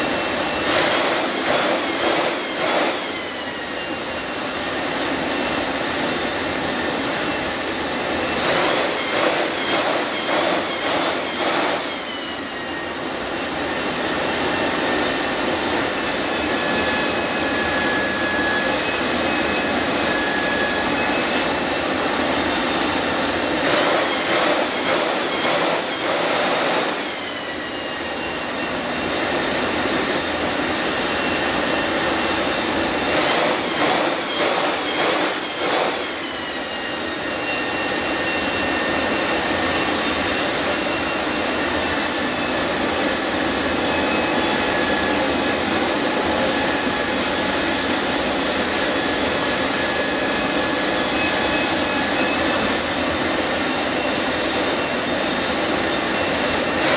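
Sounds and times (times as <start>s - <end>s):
turbojet engine high-pitched whine: 0.0s - 56.9s.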